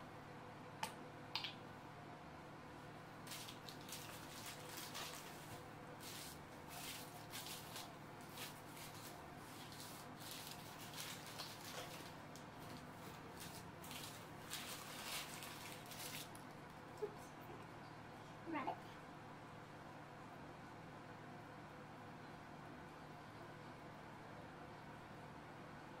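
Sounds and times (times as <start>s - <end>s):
low steady hum: 0.0s - 26.0s
paper wrapping crinkling: 3.2s - 16.8s.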